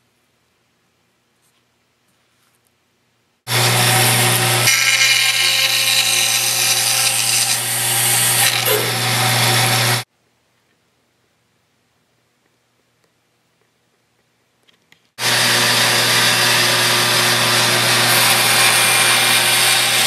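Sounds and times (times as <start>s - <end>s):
band saw motor hum: 3.5s - 10.1s, 15.2s - 20.0s
saw blade hissing through wood: 8.4s - 9.0s.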